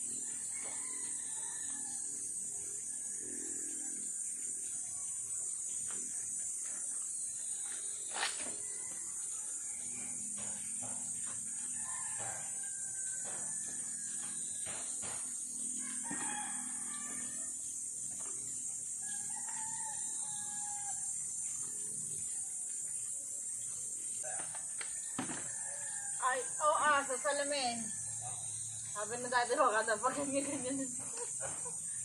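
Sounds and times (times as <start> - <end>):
roosters crowing: 0.0 - 4.0, 11.4 - 14.8, 15.5 - 17.9, 19.0 - 21.2, 25.0 - 32.0
high-pitched insect drone: 0.0 - 32.0.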